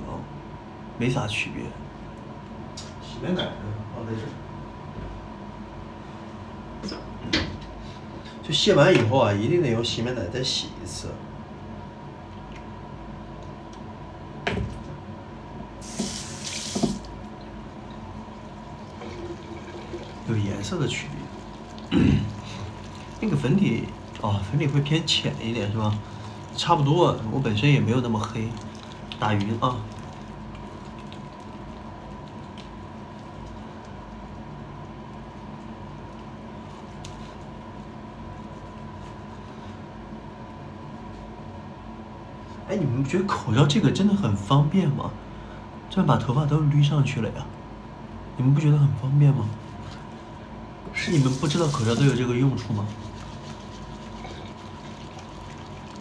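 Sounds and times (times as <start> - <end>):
electrical hum: 0.0 - 56.0
sink tap running into basin: 15.8 - 17.1, 18.9 - 20.3.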